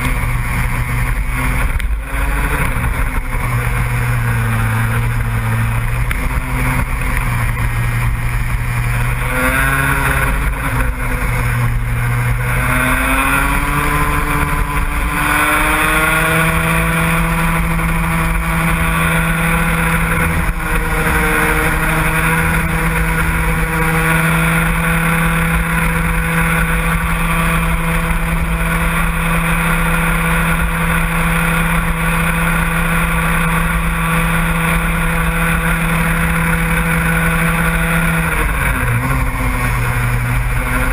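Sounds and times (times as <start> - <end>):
vehicle engine revving hard: 0.0 - 40.9.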